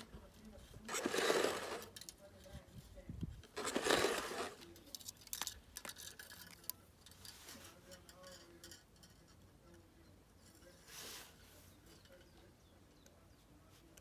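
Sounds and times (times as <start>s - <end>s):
rustle: 3.6s - 9.8s, 10.4s - 12.2s.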